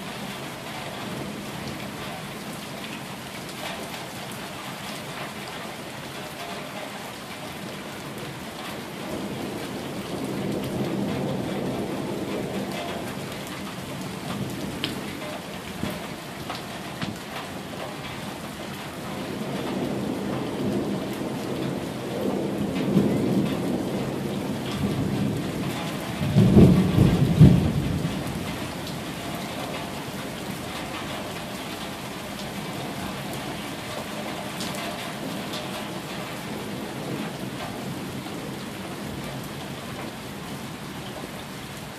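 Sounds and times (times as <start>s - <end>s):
rain falling on wet street: 0.0s - 41.9s
thunder rumbling: 8.6s - 17.3s, 19.1s - 31.5s.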